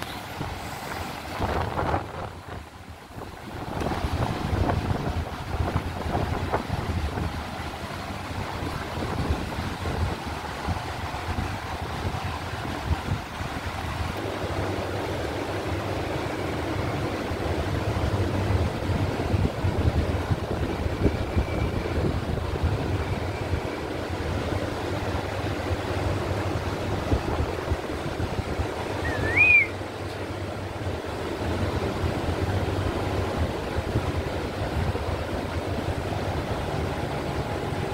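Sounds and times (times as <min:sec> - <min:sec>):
low rumbling background noise: 0:00.0 - 0:37.9
high-pitched rising and falling call: 0:29.0 - 0:29.8.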